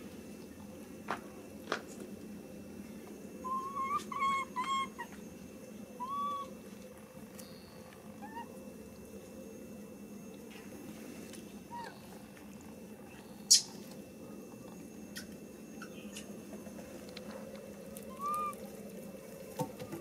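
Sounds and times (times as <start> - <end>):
monkey high-pitched cries: 3.4 - 5.2, 6.0 - 6.6, 8.2 - 8.6, 11.7 - 12.1, 18.0 - 18.6.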